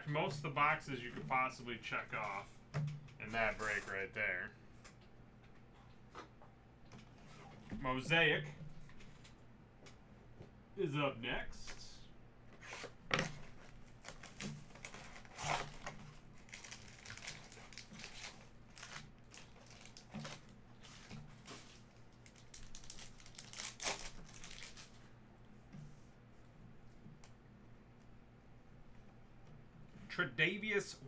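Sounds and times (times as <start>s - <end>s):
plastic wrapping crinkling: 13.5s - 25.1s
foil pack ripping open: 14.0s - 25.0s.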